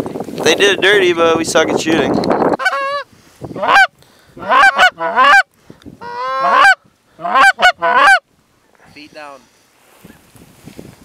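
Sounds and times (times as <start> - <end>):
goose call honks and clucks: 2.5 - 8.3.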